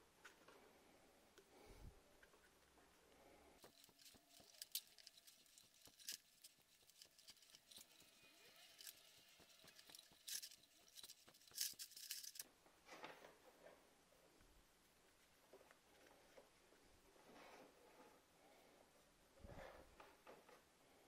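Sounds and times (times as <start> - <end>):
plastic scraping and rubbing: 3.6 - 13.3.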